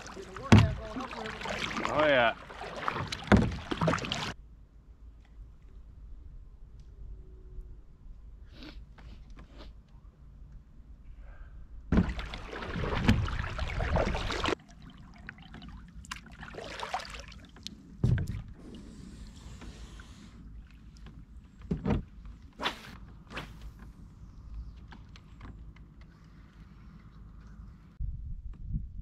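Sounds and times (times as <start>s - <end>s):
paddle strokes splashing: 0.0s - 4.4s, 11.9s - 21.0s
paddle knocking on kayak hull: 0.4s - 1.9s, 2.8s - 4.3s, 11.9s - 14.5s.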